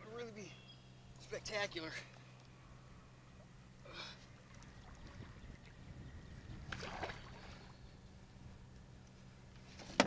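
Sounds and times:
water lapping against kayak hull: 3.3s - 8.0s.

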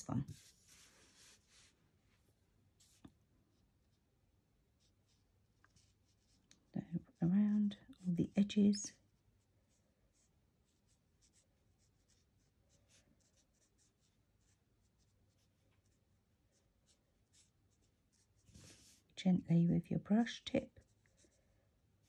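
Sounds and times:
marker scratching on card: 9.7s - 19.0s.

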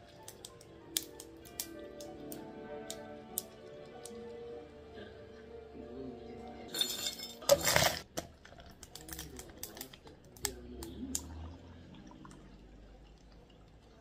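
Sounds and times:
faint background music: 0.0s - 14.0s
ice clinking in plastic bottle: 6.7s - 10.4s
liquid pouring into cup: 7.5s - 14.0s.

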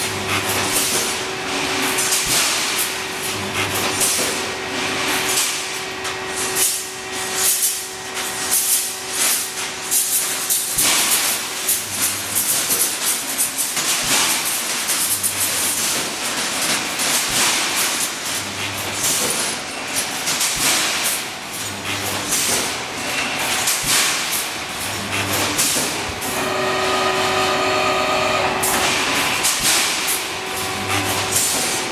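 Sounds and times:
low machine hum: 24.7s - 31.9s.

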